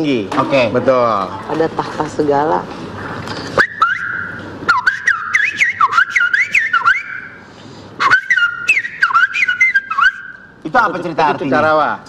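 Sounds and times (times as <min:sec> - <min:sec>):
man whistling birdsong: 0:03.6 - 0:07.4, 0:08.0 - 0:10.5.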